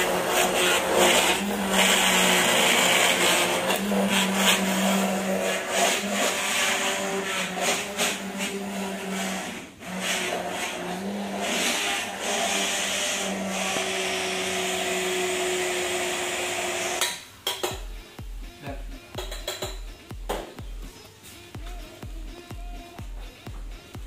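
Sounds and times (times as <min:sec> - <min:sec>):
immersion blender motor hum: 0:00.0 - 0:17.0
music with a steady beat: 0:17.6 - 0:24.0.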